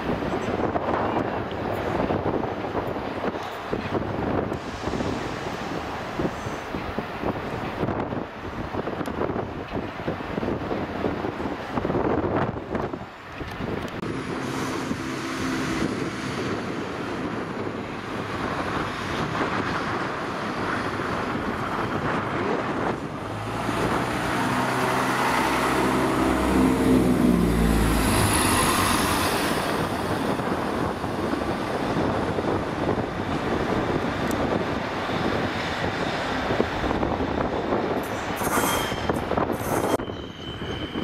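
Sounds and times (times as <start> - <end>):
diesel train engines throbbing: 9.9 - 41.0.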